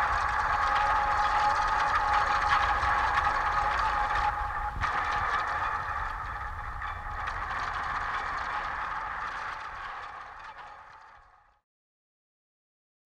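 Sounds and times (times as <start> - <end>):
droning noise music: 0.0 - 11.5.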